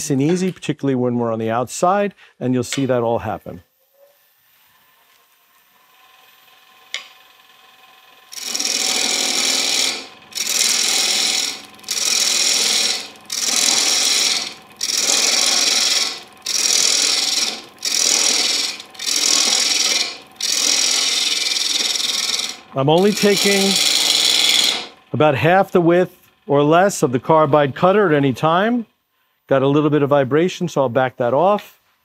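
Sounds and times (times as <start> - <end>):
lathe tool scraping wooden bowl: 3.8 - 28.9
lathe humming: 4.5 - 28.9.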